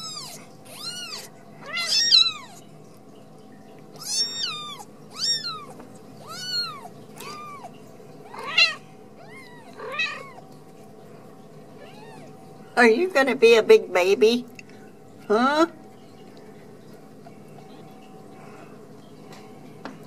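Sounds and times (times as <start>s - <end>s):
kitten mewing: 0.0s - 2.6s, 4.0s - 7.7s
faint steady hum: 0.0s - 20.0s.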